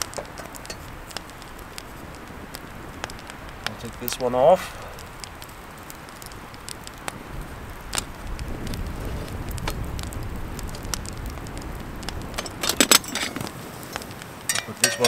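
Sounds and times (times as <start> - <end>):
campfire crackling and popping: 0.0 - 15.0.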